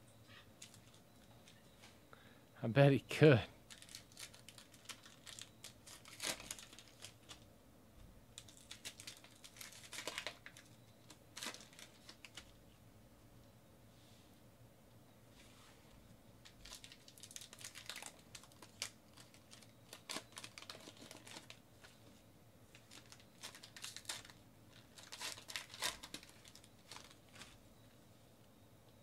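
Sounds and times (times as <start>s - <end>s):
foil wrappers crinkling and tearing: 3.7s - 7.4s, 8.4s - 12.6s, 16.4s - 21.6s, 22.7s - 27.6s.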